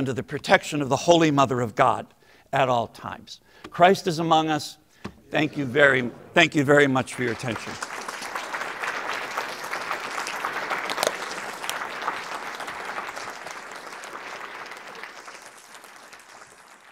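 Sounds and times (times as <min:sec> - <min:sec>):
audience applauding: 0:06.9 - 0:16.9.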